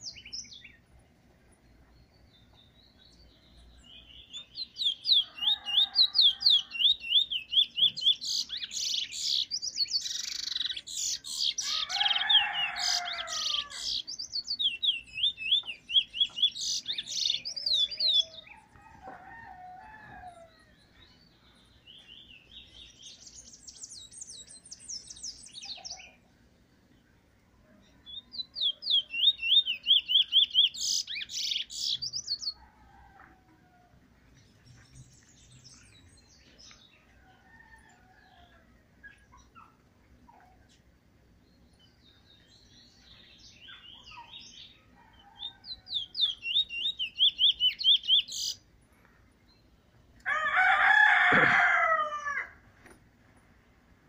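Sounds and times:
finch singing: 1.6s - 18.8s, 27.9s - 32.6s, 41.8s - 48.6s.

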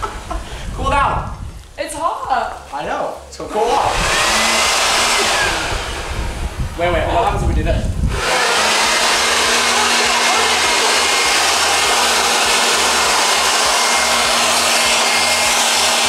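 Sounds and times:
electric leaf blower running: 3.5s - 6.8s, 8.1s - 16.0s.

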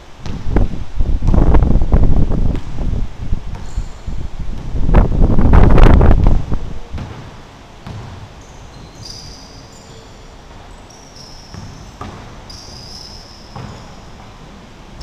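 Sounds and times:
basketball bouncing on wooden floor: 0.2s - 0.6s, 3.5s - 3.9s, 6.9s - 9.3s, 11.4s - 14.3s
sneaker squeaks: 3.5s - 4.2s, 7.0s - 15.0s.

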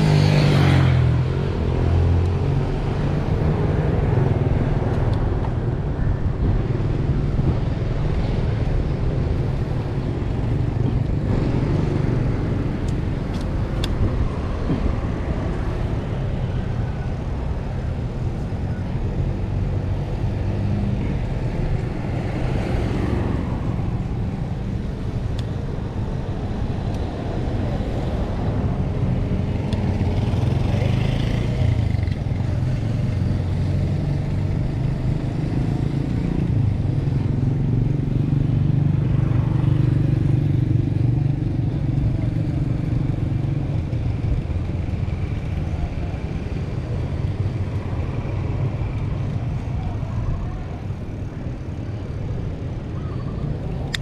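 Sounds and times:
wind over microphone: 2.4s - 30.8s.

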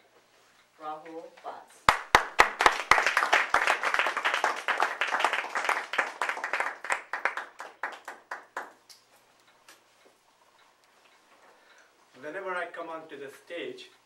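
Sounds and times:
audience applauding: 1.9s - 8.8s.

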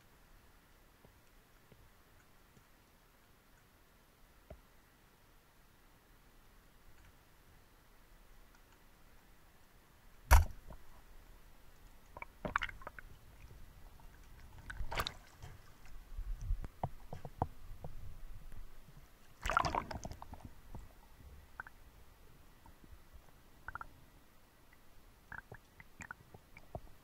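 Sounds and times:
speargun firing clack: 10.3s - 10.6s
underwater knocks and clicks: 16.4s - 18.1s.

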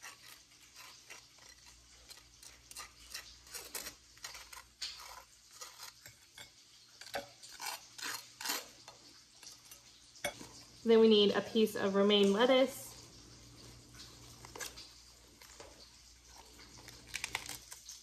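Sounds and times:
knife scraping on toast: 0.0s - 10.5s, 14.2s - 18.0s.

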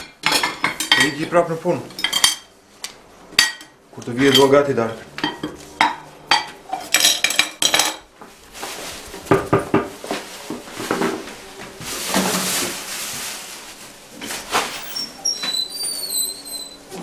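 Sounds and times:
dishes and cutlery clattering: 0.0s - 2.5s, 3.4s - 4.6s, 5.2s - 8.1s.

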